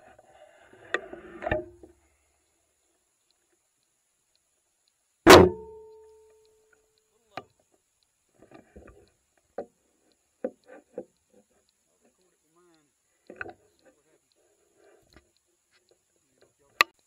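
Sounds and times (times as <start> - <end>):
faint clicks and taps: 1.8 - 5.2, 5.8 - 17.0
sharp knock with ringing tone: 5.3 - 6.0.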